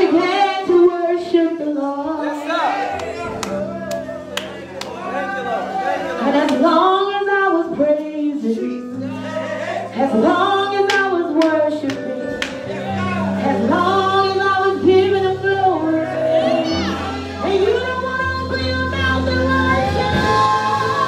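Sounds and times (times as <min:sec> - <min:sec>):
woman singing: 0:00.0 - 0:02.4, 0:06.2 - 0:09.0, 0:10.0 - 0:21.0.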